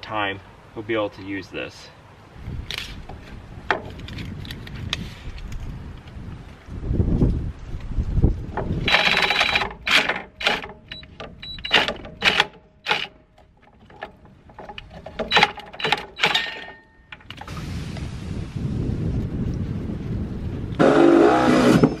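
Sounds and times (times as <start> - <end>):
reciprocating saw cutting pipe: 11.6 - 13.2, 20.8 - 22.0.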